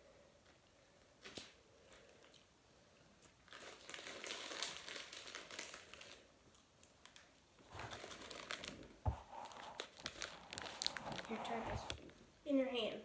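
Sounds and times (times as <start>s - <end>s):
plastic packaging crinkling: 1.2s - 2.5s, 3.2s - 12.2s.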